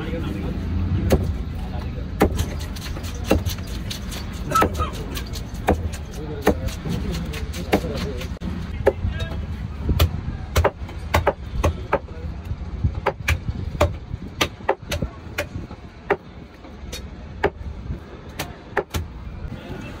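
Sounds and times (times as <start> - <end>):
low steady rumble: 0.0 - 19.8
knife chopping on wooden block: 2.2 - 9.0.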